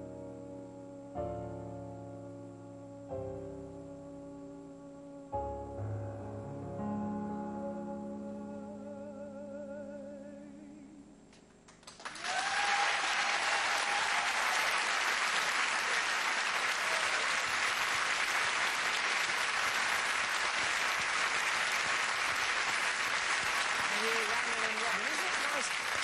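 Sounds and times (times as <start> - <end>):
audience applause: 11.8 - 26.0
person whooping: 12.2 - 14.8, 15.8 - 17.5.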